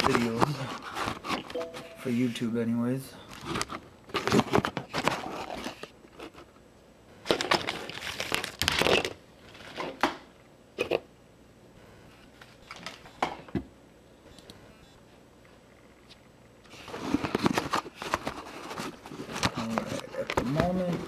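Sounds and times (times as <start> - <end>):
camera handling rustling and scraping: 0.0 - 1.9.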